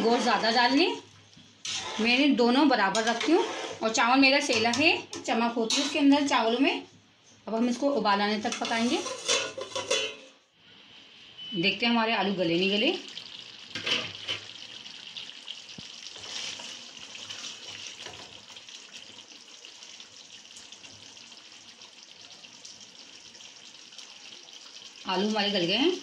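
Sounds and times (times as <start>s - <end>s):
curry simmering in a wok: 13.0s - 26.0s.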